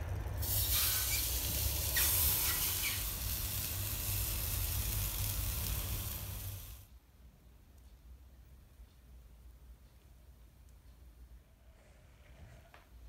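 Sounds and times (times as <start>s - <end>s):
chicken sizzling on a grill: 0.4s - 6.9s.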